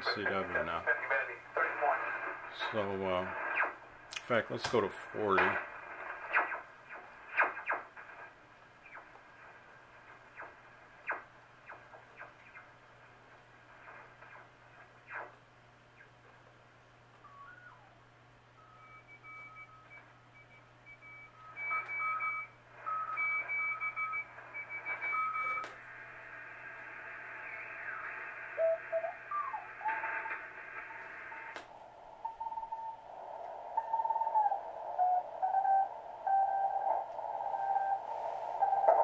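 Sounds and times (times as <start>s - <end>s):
radio band hiss: 0.0s - 15.4s, 24.3s - 39.0s
steady low hum: 0.0s - 39.0s
morse code signals: 18.6s - 25.6s, 28.6s - 31.5s, 33.8s - 39.0s.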